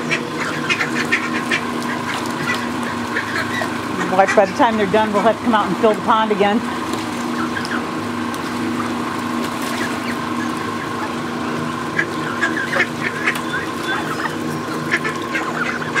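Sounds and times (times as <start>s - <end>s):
geese and ducks calling: 0.0s - 6.1s, 6.9s - 16.0s
steady low hum: 0.0s - 16.0s.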